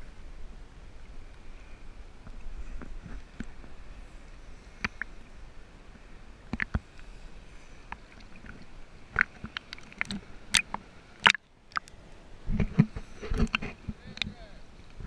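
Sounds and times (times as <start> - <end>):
water lapping against camera: 6.4 - 15.0.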